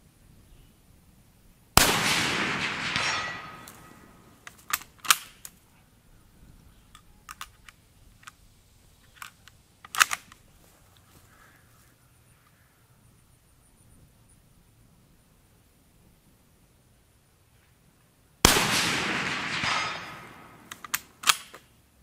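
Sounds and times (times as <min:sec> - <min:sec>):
rifle shot echoing: 0:01.8 - 0:04.4, 0:18.4 - 0:21.5
rifle bolt clicking and clacking: 0:02.6 - 0:05.6, 0:07.0 - 0:08.4, 0:09.1 - 0:10.4, 0:19.2 - 0:21.7.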